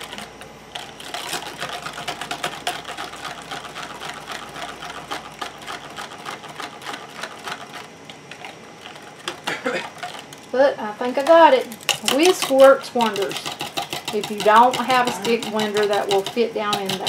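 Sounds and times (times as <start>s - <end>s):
wire whisk clicking against cup: 11.9s - 17.0s.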